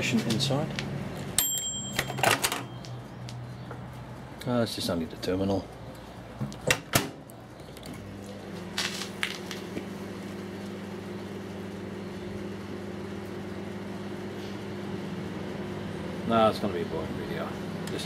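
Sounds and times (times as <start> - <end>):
microwave oven humming: 6.2 - 18.0.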